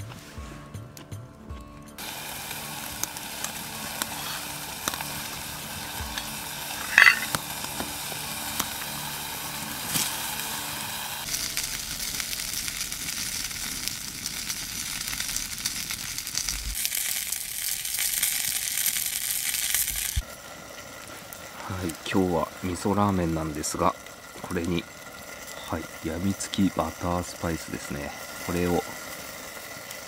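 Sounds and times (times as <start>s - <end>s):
food sizzling in a pan: 2.0s - 30.0s
sharp metallic clink: 6.1s - 7.4s.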